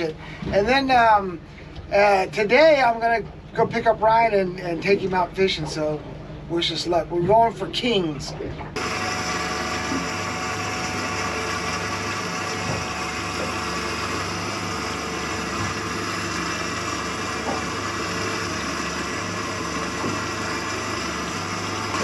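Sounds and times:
outboard motor idling: 0:00.0 - 0:22.0.

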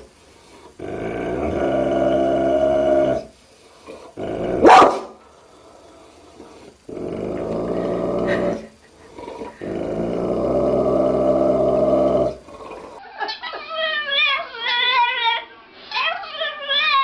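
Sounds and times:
dog growling: 0:00.5 - 0:04.9, 0:05.9 - 0:13.0
dog barking: 0:04.6 - 0:05.2.

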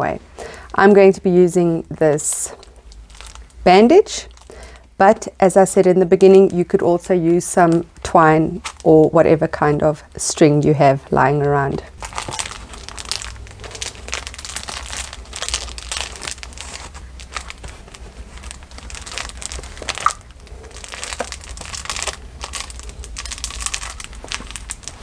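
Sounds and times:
plastic sheeting crinkling: 0:02.5 - 0:04.6, 0:11.7 - 0:25.0
cloth rustling and crinkling: 0:02.6 - 0:03.6, 0:11.6 - 0:25.0.

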